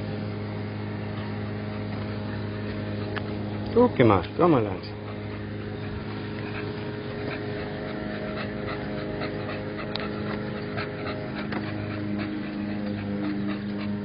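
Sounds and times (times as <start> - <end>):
steady low hum: 0.0 - 14.0
dog claws clicking on asphalt: 6.0 - 13.9.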